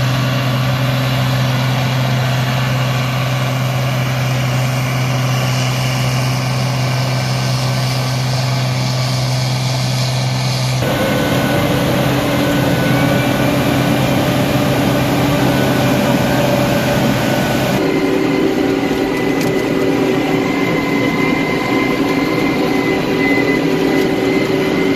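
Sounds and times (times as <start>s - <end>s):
cotton picker machine droning: 10.8s - 24.9s.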